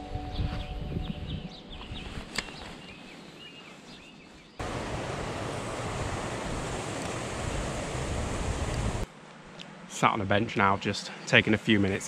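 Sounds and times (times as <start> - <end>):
small birds chirping: 0.4 - 4.6
rushing outdoor noise: 4.6 - 12.0.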